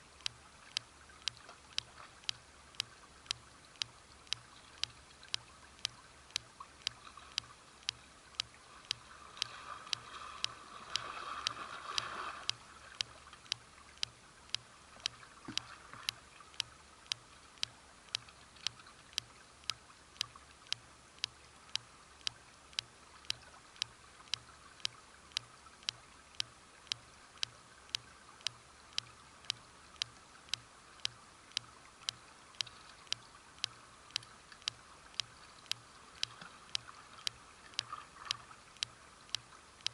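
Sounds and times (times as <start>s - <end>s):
running stream: 0.0s - 39.9s
sharp clicking: 0.2s - 39.9s.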